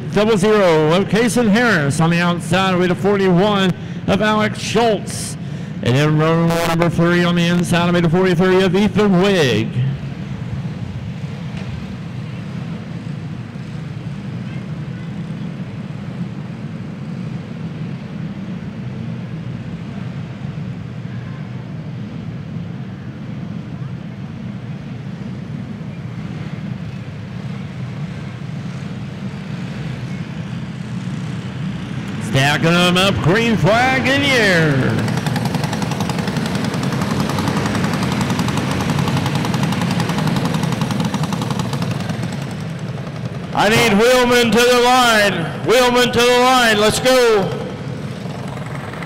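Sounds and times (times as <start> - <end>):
kart engines droning: 0.0 - 49.0.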